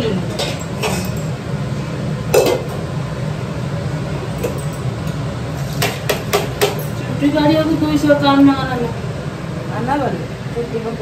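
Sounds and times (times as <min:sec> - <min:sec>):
steady low hum: 0:00.0 - 0:11.0
dishes and utensils clinking: 0:00.3 - 0:01.3, 0:02.3 - 0:02.8, 0:04.4 - 0:07.1.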